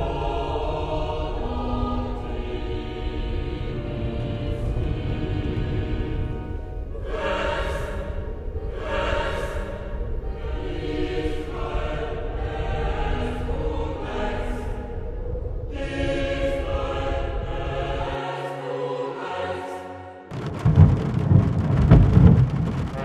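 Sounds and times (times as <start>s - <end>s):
choir singing sustained chords: 0.0s - 20.9s
low steady rumble: 20.3s - 23.0s
sudden loud noise: 20.3s - 23.0s.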